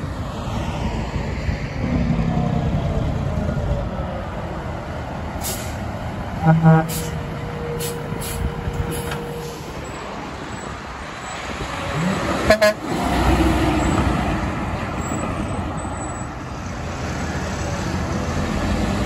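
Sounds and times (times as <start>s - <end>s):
road traffic noise: 0.0s - 19.0s
truck rumbling past: 0.0s - 19.0s
truck air horn toot: 6.4s - 9.8s, 12.4s - 12.9s.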